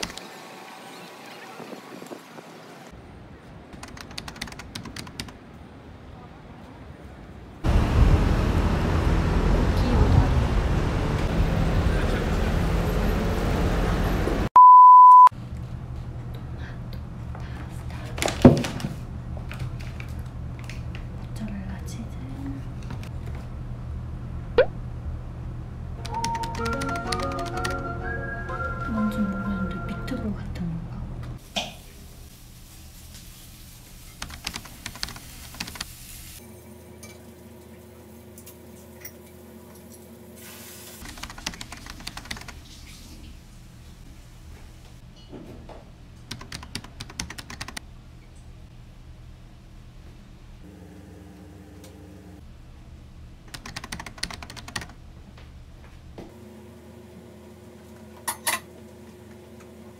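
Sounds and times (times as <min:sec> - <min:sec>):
outdoor traffic noise: 0:00.0 - 0:14.5, 0:15.4 - 0:26.2, 0:54.4 - 0:59.9
loud electronic beep: 0:14.6 - 0:15.3
room hum: 0:36.6 - 0:59.9.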